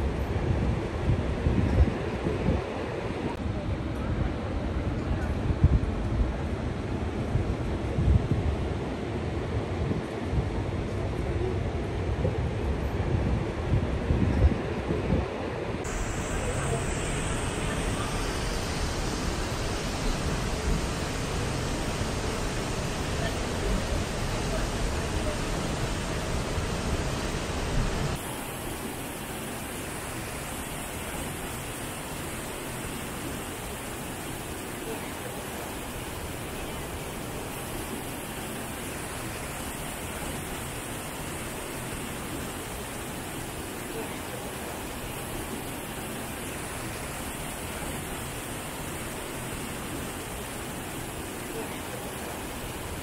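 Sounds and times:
waterfall roaring: 15.8 - 53.0.

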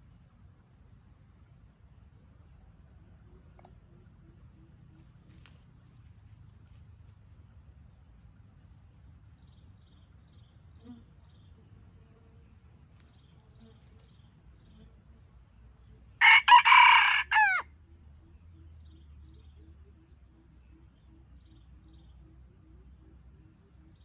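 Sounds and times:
rooster crowing: 16.2 - 17.7.

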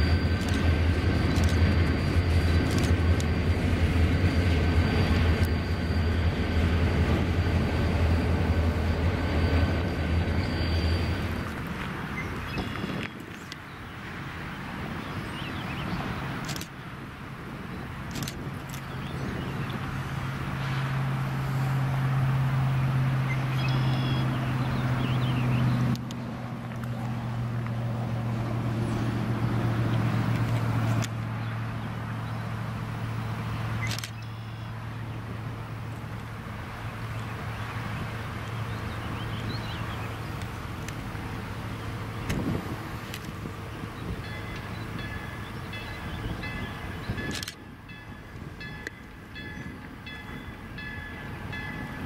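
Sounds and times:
locomotive diesel engine running: 0.0 - 14.8, 17.2 - 52.0
birds chirping: 5.9 - 16.6, 36.8 - 52.0
wheels clanking on track: 17.7 - 52.0.

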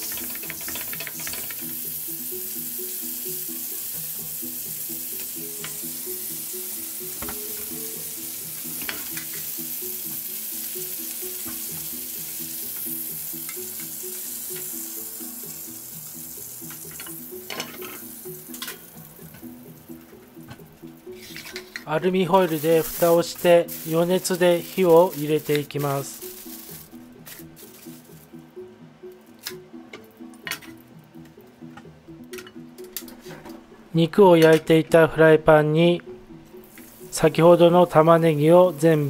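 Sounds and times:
meat sizzling in frying pan: 0.0 - 19.9, 21.0 - 28.3, 36.6 - 37.4, 38.1 - 39.0
soft background music: 0.0 - 39.0.

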